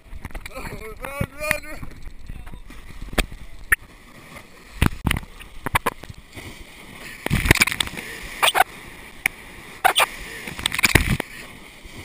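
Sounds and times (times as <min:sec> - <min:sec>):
surf washing over jetty: 0:00.0 - 0:12.0
sharp splashes and thumps: 0:07.2 - 0:08.7.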